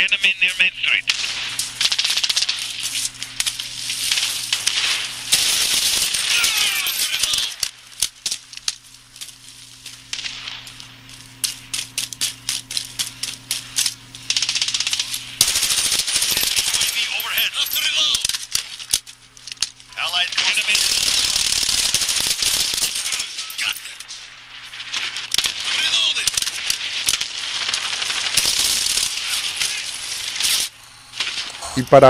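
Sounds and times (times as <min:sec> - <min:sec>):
steady low hum: 0:00.0 - 0:32.0
video game rifle gunfire: 0:04.2 - 0:07.4, 0:14.3 - 0:17.8, 0:20.3 - 0:23.6, 0:25.4 - 0:30.5.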